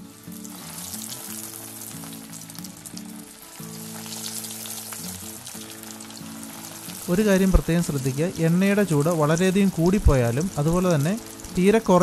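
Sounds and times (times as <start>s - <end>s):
chicken deep-frying in oil: 0.0s - 12.0s
soft background music: 0.0s - 12.0s.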